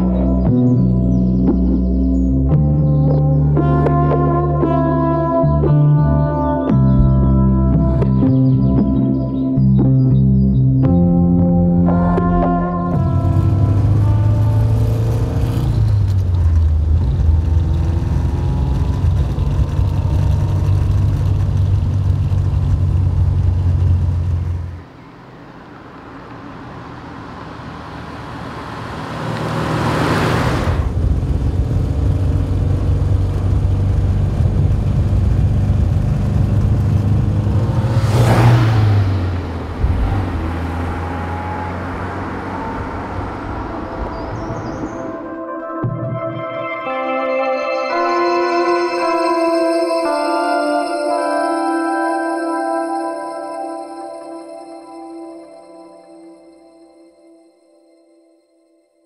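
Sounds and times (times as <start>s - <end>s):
car engine pulling under load: 12.2s - 45.2s
car passing by: 24.9s - 31.2s, 37.0s - 45.3s.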